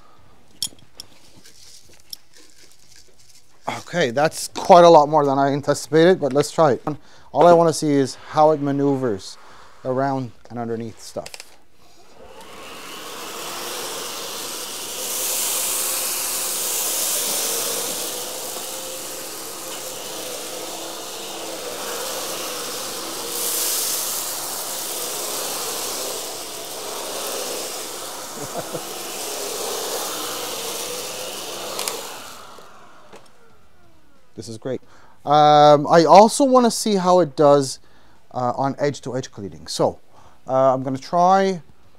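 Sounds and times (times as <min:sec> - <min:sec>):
vacuum cleaner on carpet: 0:12.0 - 0:33.9.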